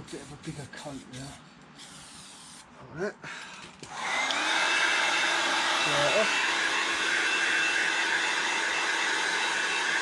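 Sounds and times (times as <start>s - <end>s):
heat gun fan blowing: 3.3s - 10.0s.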